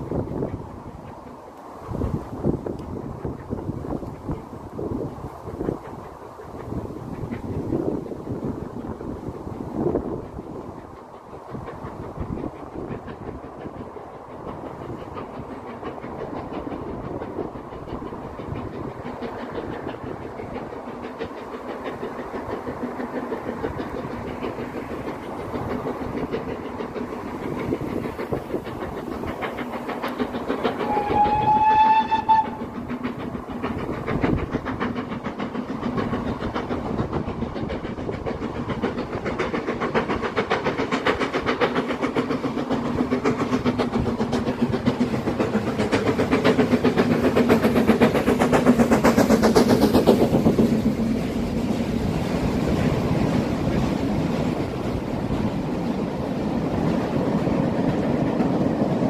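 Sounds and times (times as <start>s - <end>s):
steam locomotive exhaust beats: 0.0s - 59.0s
train coaches passing: 0.0s - 59.0s
steam whistle blast: 30.8s - 32.6s.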